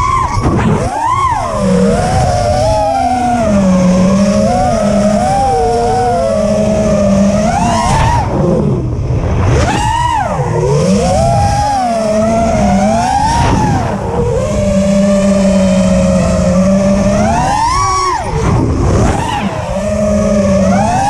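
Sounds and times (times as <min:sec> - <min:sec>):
drone motors and props whining: 0:00.0 - 0:21.0.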